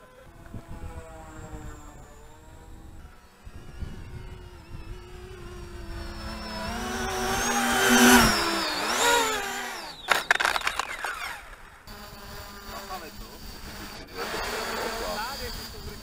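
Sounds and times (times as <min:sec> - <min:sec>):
model jet motor whine: 0:00.0 - 0:16.0
model plane clattering on tarmac: 0:10.0 - 0:11.4.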